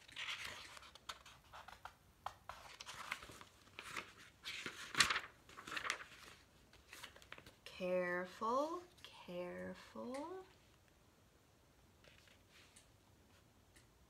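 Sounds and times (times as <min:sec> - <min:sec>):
book pages turning: 0:00.0 - 0:07.6, 0:12.0 - 0:12.9.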